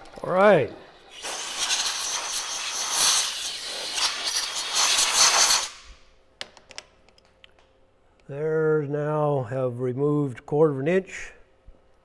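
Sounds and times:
air blowgun hissing: 1.1 - 5.9.

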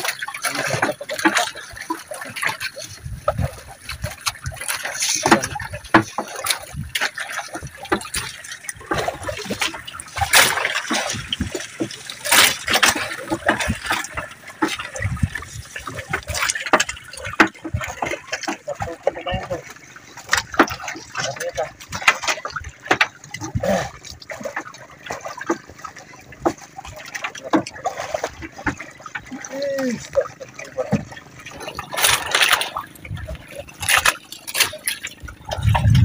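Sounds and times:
water splashing and trickling: 0.0 - 36.0
net floats knocking on hull: 3.2 - 19.6.

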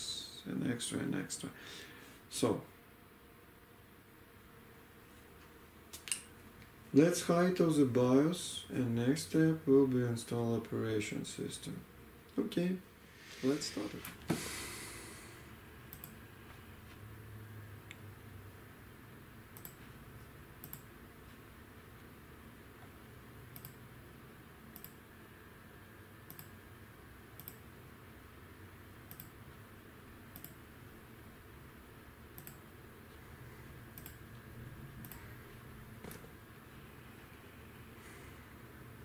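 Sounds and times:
faint low hum: 0.0 - 39.0
computer mouse clicking: 15.9 - 16.2, 19.5 - 19.9, 20.6 - 20.9, 23.5 - 23.8, 24.7 - 25.0, 26.3 - 26.6, 27.4 - 27.7, 29.0 - 29.4, 30.3 - 30.6, 32.3 - 32.7, 33.9 - 34.4, 35.0 - 35.4.

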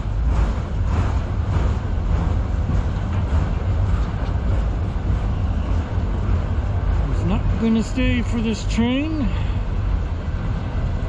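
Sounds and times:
freight train rolling past: 0.0 - 11.0
wheels clicking on rail: 0.0 - 11.0.

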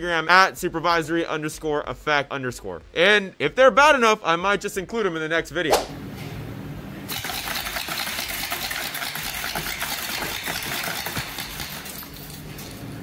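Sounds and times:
airsoft shotgun rapid fire: 7.1 - 11.7.

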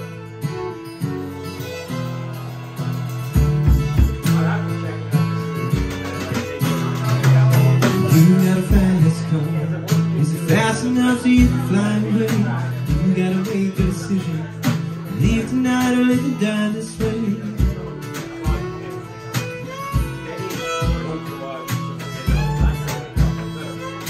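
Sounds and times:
strummed acoustic guitar: 0.0 - 24.0
violin: 0.0 - 24.0
drum beat: 3.1 - 4.6, 5.8 - 10.7, 11.4 - 16.3, 17.0 - 24.0
man singing: 7.1 - 19.1.

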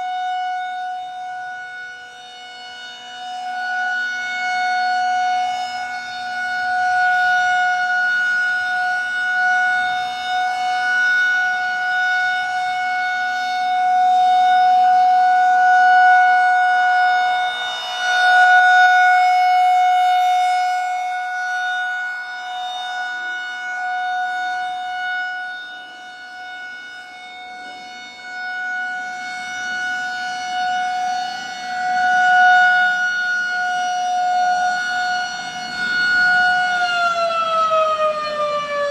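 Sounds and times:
rotating warning siren: 0.0 - 38.9.

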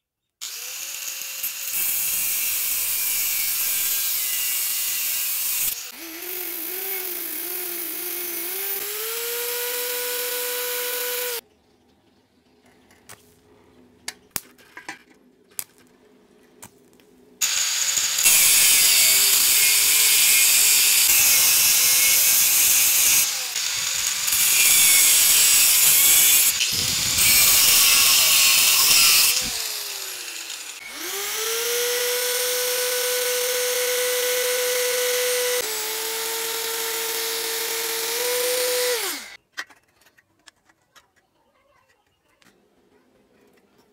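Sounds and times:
abrasive disc grinding steel: 17.4 - 39.4
electric motor whining: 17.4 - 39.4.

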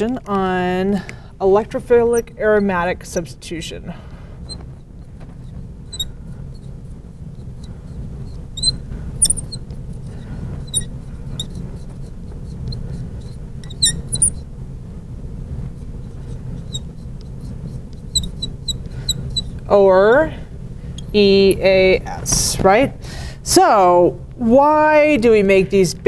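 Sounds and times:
low hum: 0.0 - 26.0
marker squeaking on glass: 5.4 - 6.8, 7.4 - 14.5, 16.0 - 19.6.

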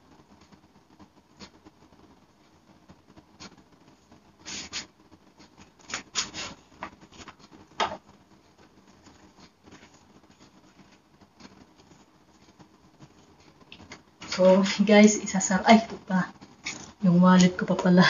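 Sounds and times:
fabric rustling: 0.4 - 14.7.

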